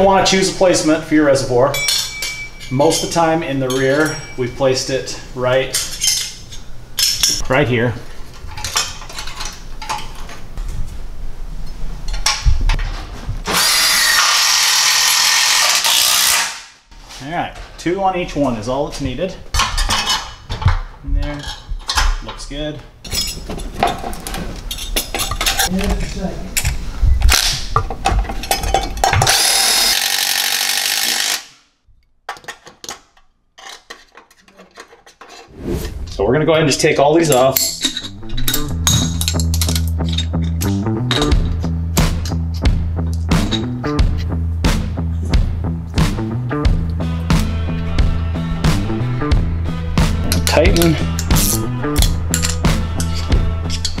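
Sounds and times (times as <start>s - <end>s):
cordless drill running: 13.5s - 16.6s, 29.3s - 31.5s
clicks and knocks of parts handled: 32.3s - 35.4s, 37.3s - 41.6s, 50.3s - 54.0s.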